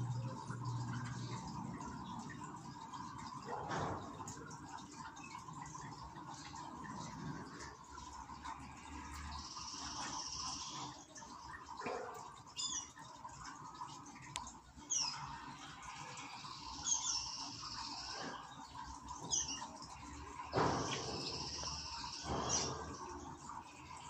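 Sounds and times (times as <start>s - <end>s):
canaries chirping: 16.3s - 18.4s.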